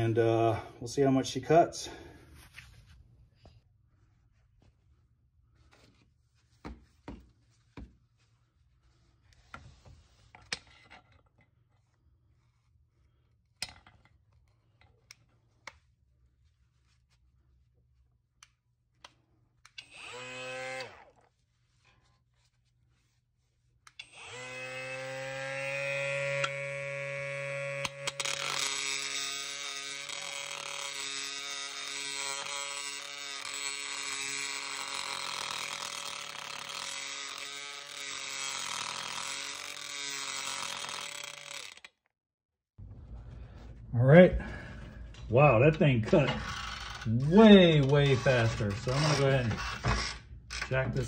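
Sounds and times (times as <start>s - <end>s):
power tool motor whirring: 19.8s - 21.1s, 24.0s - 41.9s, 46.2s - 50.8s
grinding bit cutting metal: 24.0s - 41.9s, 46.0s - 51.0s.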